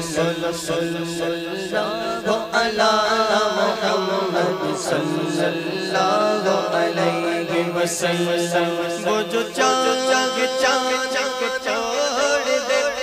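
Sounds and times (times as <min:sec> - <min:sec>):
men singing a wavering melody: 0:00.0 - 0:13.0
low drone: 0:03.4 - 0:07.6.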